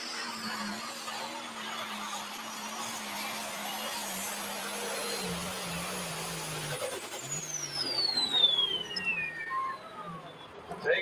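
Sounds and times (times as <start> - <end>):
turbocharger whine falling: 4.9 - 10.4.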